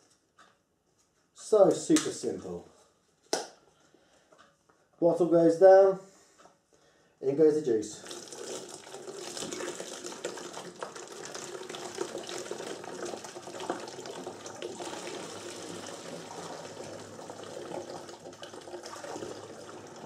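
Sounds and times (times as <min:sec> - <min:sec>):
juice pouring into plastic bottle: 0:08.0 - 0:20.0.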